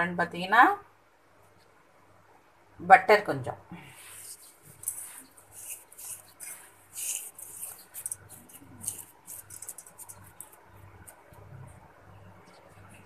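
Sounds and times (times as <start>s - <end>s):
hand rustling flour in metal bowl: 3.9s - 11.6s.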